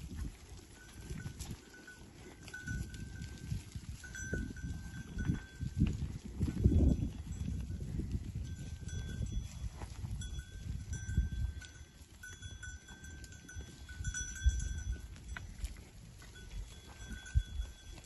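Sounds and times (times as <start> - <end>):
goat bells ringing: 0.0 - 18.0.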